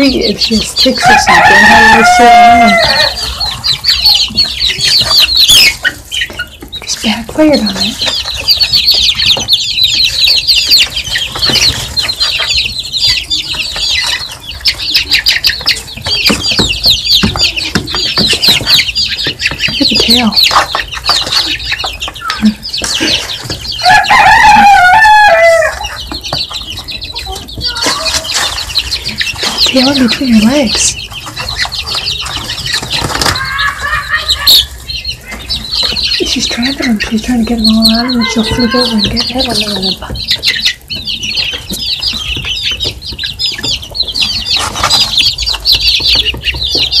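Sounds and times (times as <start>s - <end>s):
baby chicks peeping: 0.0s - 47.0s.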